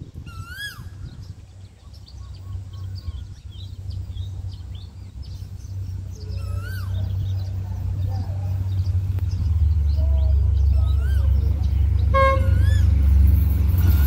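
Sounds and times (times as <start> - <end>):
birds chirping: 0.0 - 14.0
diesel train engine hum: 0.0 - 14.0
wavering pitched call: 0.3 - 1.2, 6.3 - 7.3, 10.6 - 11.5, 12.2 - 13.1.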